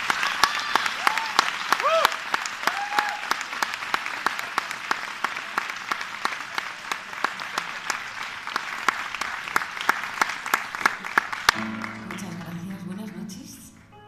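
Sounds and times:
audience applauding: 0.0 - 13.9.

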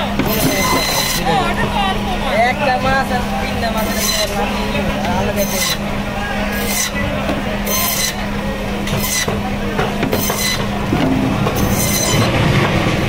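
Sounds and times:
band saw humming: 0.0 - 13.0
saw blade cutting through fish: 0.2 - 1.3, 3.8 - 4.4, 5.3 - 5.9, 6.5 - 7.0, 7.6 - 9.4, 10.0 - 10.8, 11.6 - 12.4.

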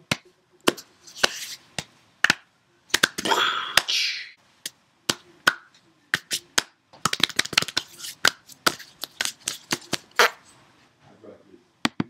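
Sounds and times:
hands slapping and clapping: 0.0 - 4.0, 4.6 - 10.3.

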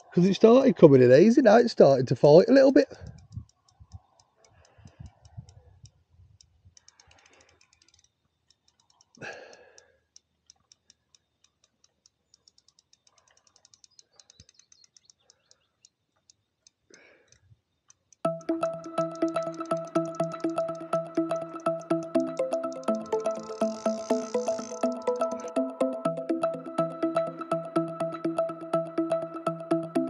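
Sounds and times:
fishing reel clicking: 6.7 - 9.2, 10.1 - 15.6, 23.4 - 25.5.

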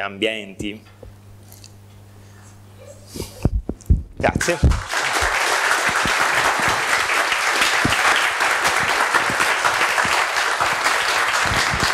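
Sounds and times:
audience applauding: 4.4 - 11.9.

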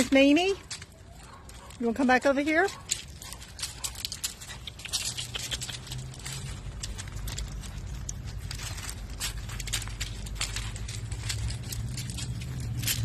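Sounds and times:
footsteps on gravel: 0.0 - 13.0
steady low rumble: 2.8 - 13.0.

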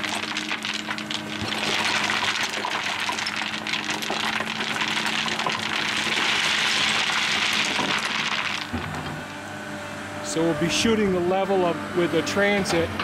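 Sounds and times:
stones clattering: 0.0 - 9.0
excavator engine running: 0.0 - 13.0.

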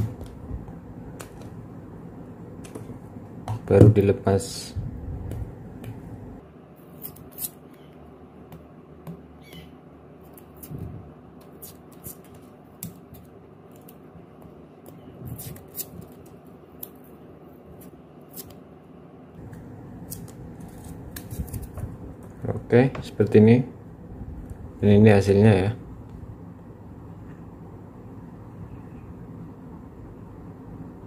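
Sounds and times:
faint low hum: 0.0 - 31.0
plastic and tape rustling: 20.1 - 22.5.

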